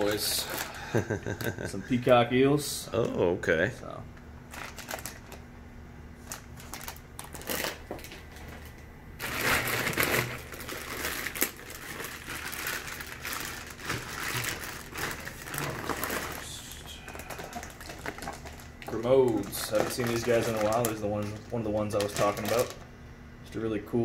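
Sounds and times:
plastic bags crinkling: 0:00.0 - 0:01.4, 0:04.5 - 0:05.4, 0:06.2 - 0:22.8.

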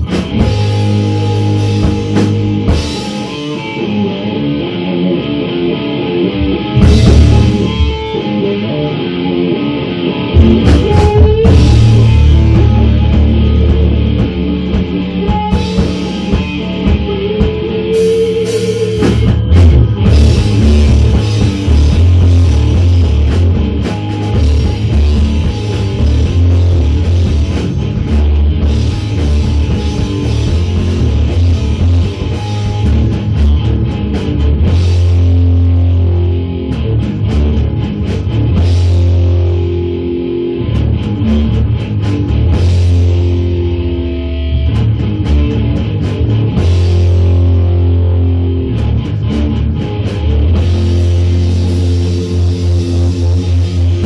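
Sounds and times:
drum kit: 0:00.0 - 0:54.0
electric guitar: 0:00.0 - 0:54.0.

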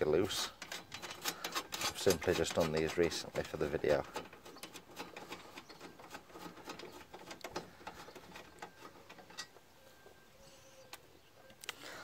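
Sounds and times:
nut clicking and scraping on stud: 0:00.3 - 0:09.6.

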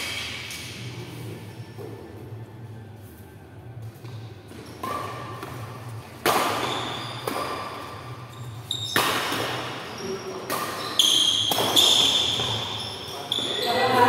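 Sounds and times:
rackets hitting shuttlecock: 0:04.0 - 0:13.5.

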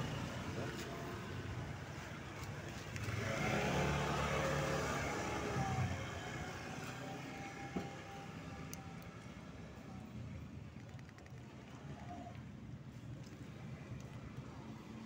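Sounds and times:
vehicle passing: 0:00.0 - 0:07.8.

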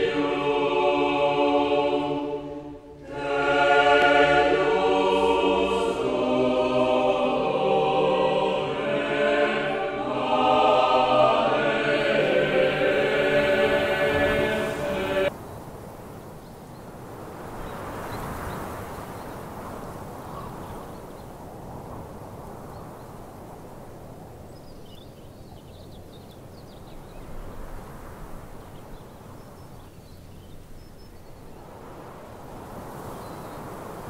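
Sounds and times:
steady rushing noise: 0:00.0 - 0:16.0
faint bird chirps: 0:17.6 - 0:22.0, 0:33.0 - 0:33.8.

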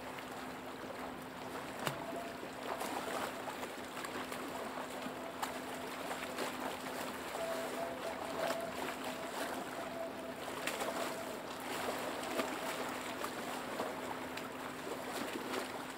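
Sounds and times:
lake waves lapping and splashing: 0:00.0 - 0:15.9
steady low hum: 0:00.0 - 0:15.9.

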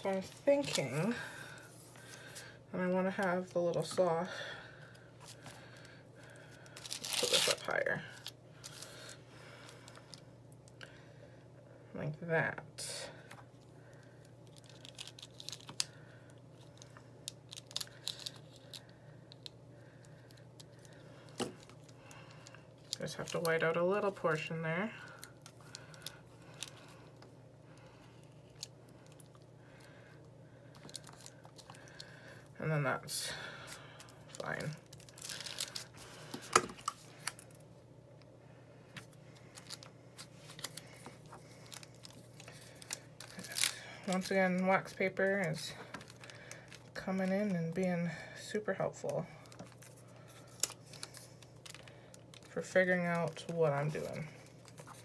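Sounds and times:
wax paper crinkling: 0:00.0 - 0:04.0, 0:05.2 - 0:10.2, 0:13.8 - 0:27.1, 0:30.7 - 0:32.4, 0:33.4 - 0:37.7, 0:39.0 - 0:48.2, 0:48.9 - 0:55.0
faint low hum: 0:00.0 - 0:55.0.

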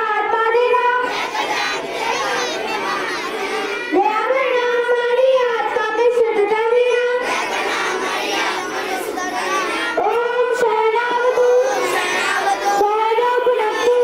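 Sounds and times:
children singing in unison: 0:01.0 - 0:04.0, 0:07.2 - 0:10.0, 0:11.1 - 0:14.0.

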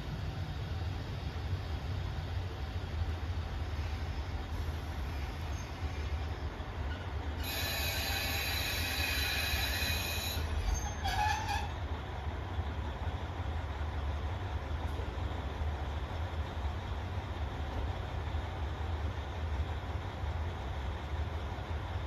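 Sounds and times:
diesel train rumbling: 0:00.0 - 0:22.0
train brakes squealing: 0:05.1 - 0:11.9.

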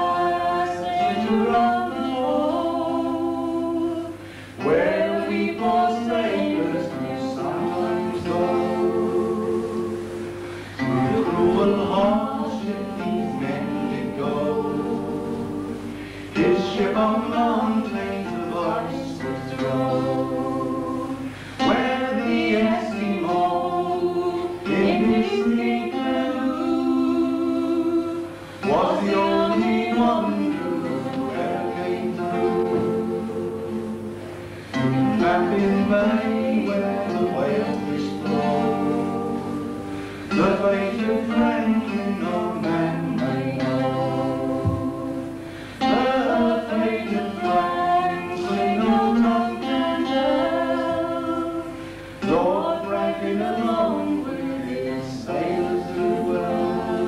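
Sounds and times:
acoustic guitar: 0:00.0 - 0:57.0
man and woman singing: 0:00.0 - 0:57.0.

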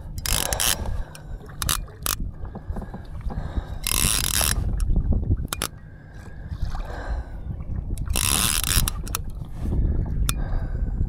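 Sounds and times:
water sloshing against kayak hull: 0:00.0 - 0:10.3
wind rumbling on microphone: 0:00.0 - 0:11.0.

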